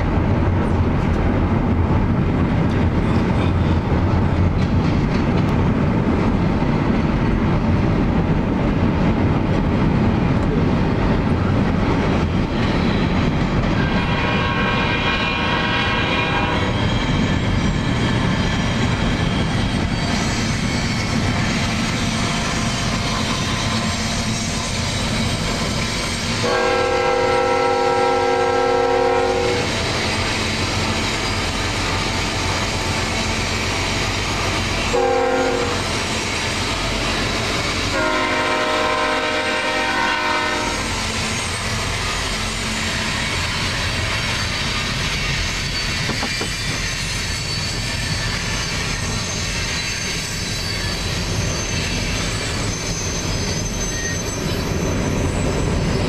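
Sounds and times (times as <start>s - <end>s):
passing train rumble: 0.0s - 56.0s
wheels clacking on rails: 0.0s - 56.0s
locomotive air horn: 13.8s - 16.8s, 26.4s - 29.7s, 34.9s - 35.9s, 37.9s - 41.0s.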